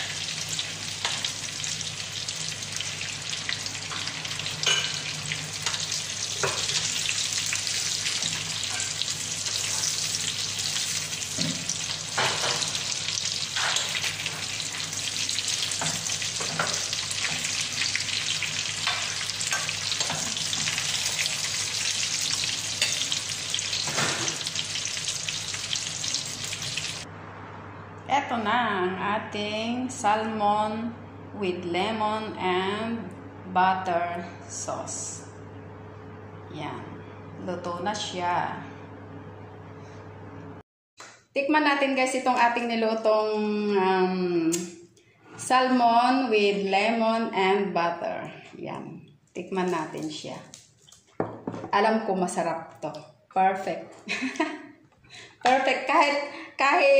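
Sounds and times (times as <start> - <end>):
fish sizzling in a frying pan: 0.0 - 27.1.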